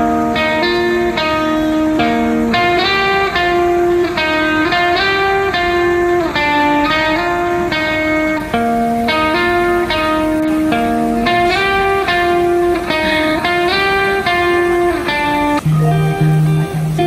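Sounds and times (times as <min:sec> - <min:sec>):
plucked guitar melody: 0:00.0 - 0:17.0.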